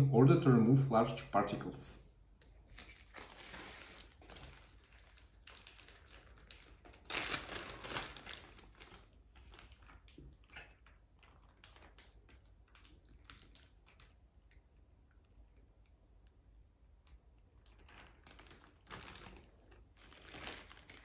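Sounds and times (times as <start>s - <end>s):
plastic bag crinkling: 2.4s - 14.2s, 17.5s - 21.0s.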